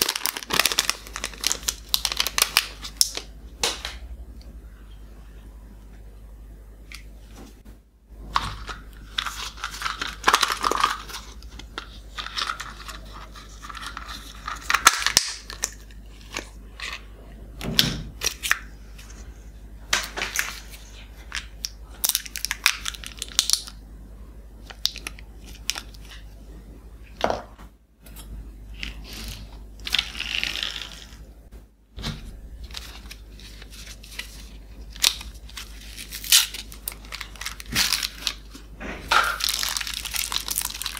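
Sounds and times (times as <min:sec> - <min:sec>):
wrappers crinkling and tearing: 0:00.0 - 0:03.3, 0:08.4 - 0:17.0, 0:22.0 - 0:23.7, 0:28.8 - 0:31.2, 0:32.5 - 0:40.9.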